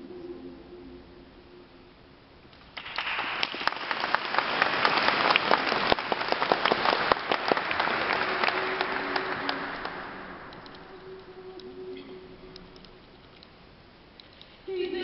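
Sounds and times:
audience applause: 0:02.8 - 0:11.3.

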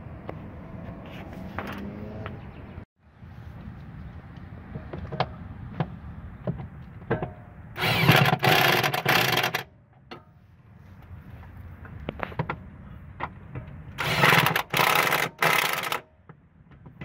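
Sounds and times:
electric impact wrench: 0:07.8 - 0:09.6, 0:14.0 - 0:16.0.

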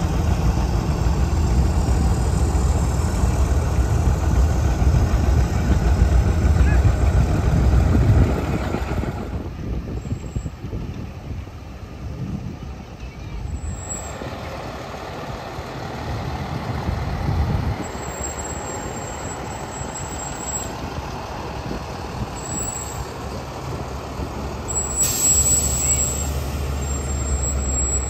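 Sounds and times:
truck engine idling: 0:00.0 - 0:28.0
trucks driving past: 0:00.0 - 0:28.0
truck brake hiss: 0:24.7 - 0:28.0.

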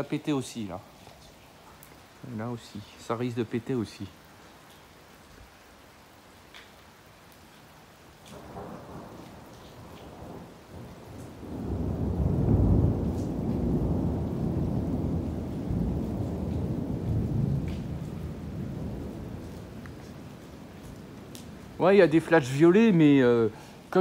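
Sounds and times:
rolling thunder rumble: 0:08.4 - 0:23.0.

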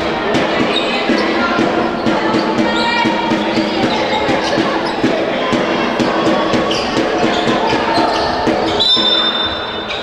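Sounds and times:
players' voices: 0:00.0 - 0:10.0
shoes squeaking on court: 0:06.7 - 0:10.0.

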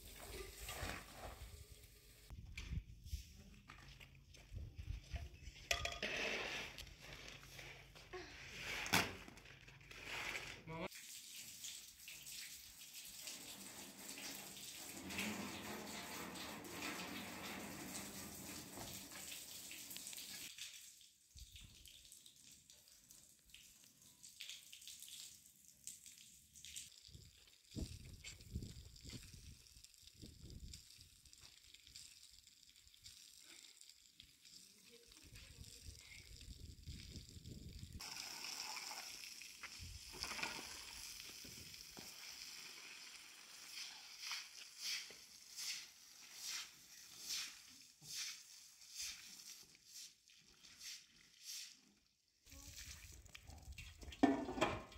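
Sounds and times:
broom swishing on wet tiles: 0:00.0 - 0:02.3, 0:09.9 - 0:15.6, 0:41.0 - 0:54.1
hose water spraying on metal: 0:10.9 - 0:20.9, 0:38.0 - 0:51.8
water splashing onto tiled floor: 0:10.9 - 0:54.9.

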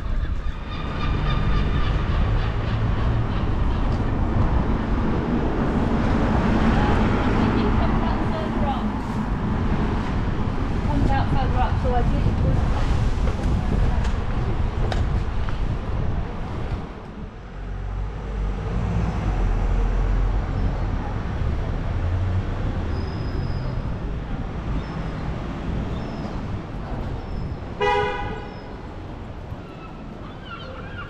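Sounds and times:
street traffic rumble: 0:00.0 - 0:31.0
vehicle horn toot: 0:27.8 - 0:28.5.

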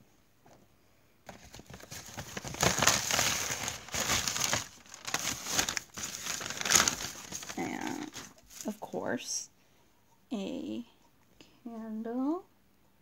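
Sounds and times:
shopping bag crinkling: 0:01.3 - 0:08.9.

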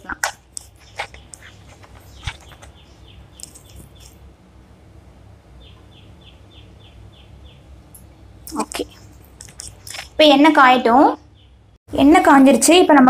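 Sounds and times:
small bird chirping: 0:00.0 - 0:04.2, 0:05.6 - 0:10.4, 0:11.0 - 0:11.7
low steady hum: 0:00.0 - 0:13.0.

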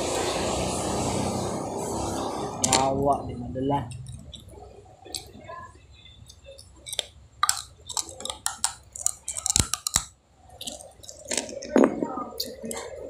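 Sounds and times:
person chewing crunchy food: 0:03.9 - 0:05.4, 0:06.3 - 0:11.8.

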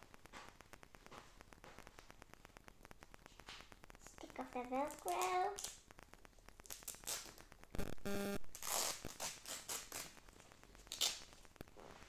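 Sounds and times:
velcro pulled apart: 0:06.6 - 0:07.4, 0:08.5 - 0:10.2, 0:10.8 - 0:11.4.

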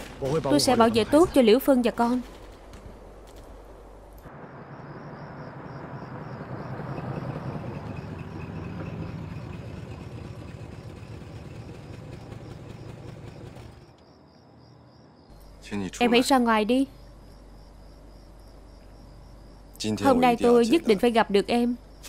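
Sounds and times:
crickets chirping: 0:03.0 - 0:22.0
car engine running: 0:06.2 - 0:14.0.

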